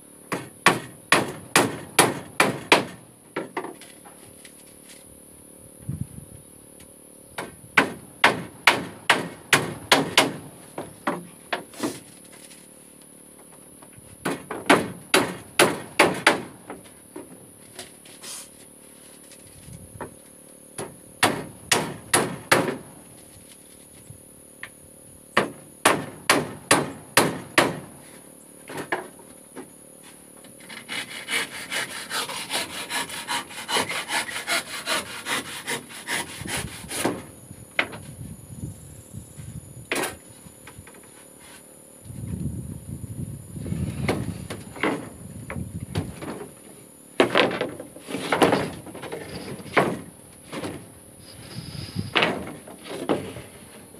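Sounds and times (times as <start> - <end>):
hammer driving nails into wood: 0.3 - 3.0, 7.8 - 10.4, 14.2 - 16.6, 21.2 - 22.9, 25.4 - 27.9
handsaw cutting wood: 30.6 - 37.3.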